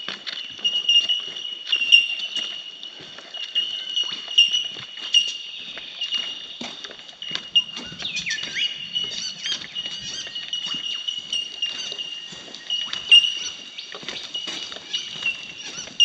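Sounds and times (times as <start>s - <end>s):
high-pitched bird chorus: 0.4s - 16.0s
bird chirps: 3.4s - 16.0s.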